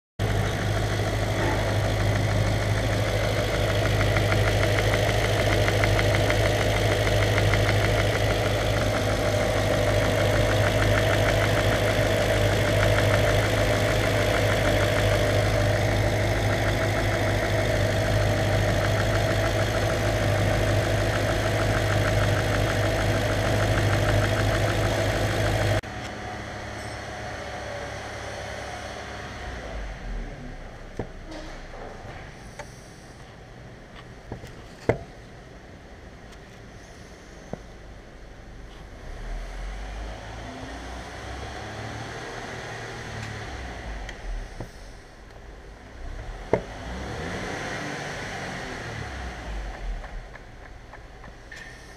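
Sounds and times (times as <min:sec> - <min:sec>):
car engine idling: 0:00.2 - 0:31.4, 0:48.4 - 0:51.9.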